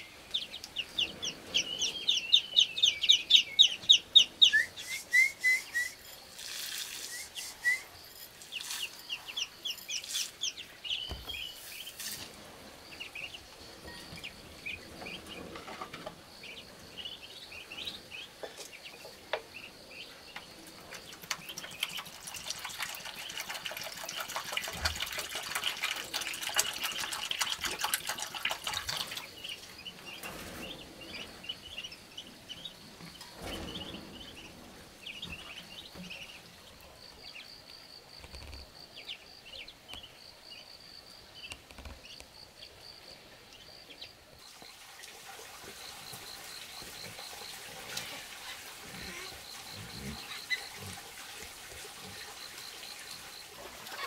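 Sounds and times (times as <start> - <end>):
ducklings peeping: 0.0 - 6.0, 26.2 - 37.5, 46.0 - 51.0, 52.1 - 54.0
water pouring and splashing: 5.7 - 12.9, 20.7 - 31.5, 44.4 - 54.0.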